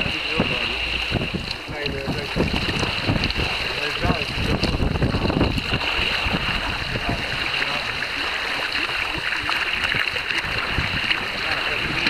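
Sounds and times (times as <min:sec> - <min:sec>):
water rushing along boat hull: 0:00.0 - 0:12.0.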